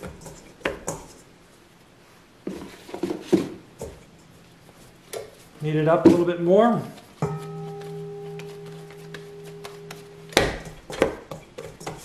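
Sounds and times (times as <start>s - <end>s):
dough knocking in bowl: 0.0s - 1.2s, 7.2s - 12.0s
metal bowl ringing: 7.2s - 11.4s.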